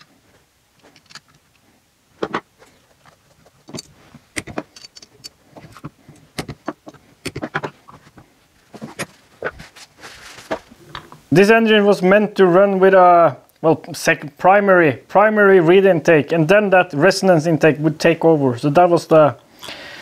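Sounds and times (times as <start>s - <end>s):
metal parts clinking on workbench: 3.7s - 7.6s.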